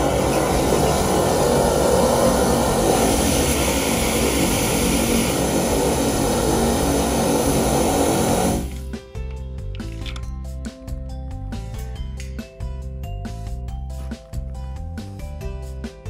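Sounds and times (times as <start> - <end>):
drain jetter spraying water: 0.0 - 8.8.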